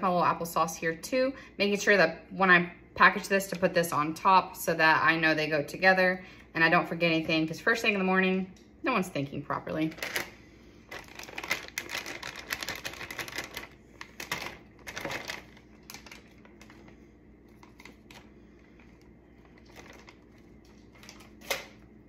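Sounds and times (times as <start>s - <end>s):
plastic bag crinkling: 9.8s - 21.8s.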